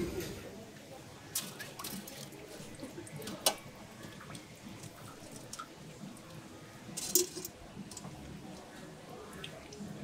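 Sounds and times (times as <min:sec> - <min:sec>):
metal cup scooping syrup: 0:06.9 - 0:08.2.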